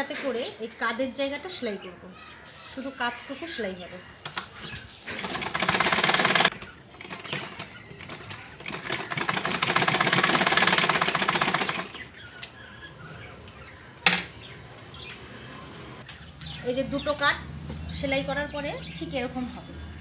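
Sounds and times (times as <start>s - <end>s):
sewing machine stitching: 5.1s - 12.0s.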